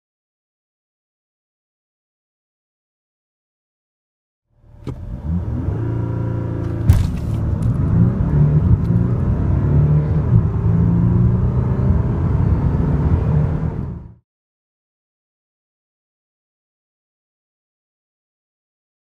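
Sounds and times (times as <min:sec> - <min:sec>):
gear shift thump: 0:04.6 - 0:05.8, 0:06.4 - 0:09.0
diesel engine accelerating: 0:04.6 - 0:14.2.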